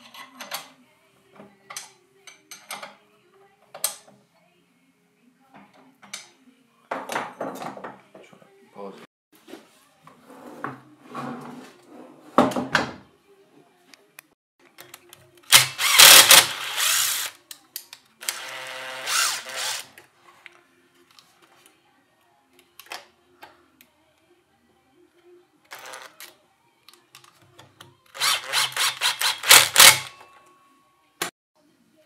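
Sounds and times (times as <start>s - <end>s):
cordless power drill running: 15.5s - 17.3s, 18.2s - 19.9s, 28.2s - 30.1s.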